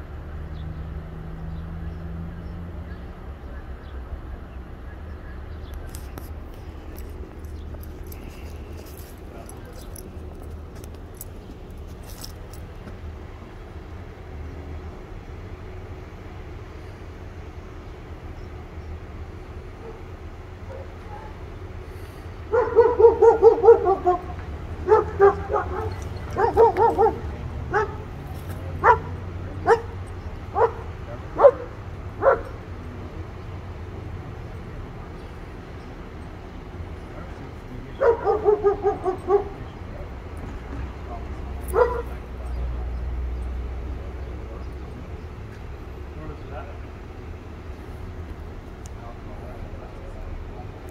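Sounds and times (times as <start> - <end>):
traffic rumble: 0.0 - 50.9
dog barking: 19.8 - 20.1, 20.7 - 21.4, 22.5 - 28.2, 28.8 - 32.6, 38.0 - 39.6, 41.7 - 42.2.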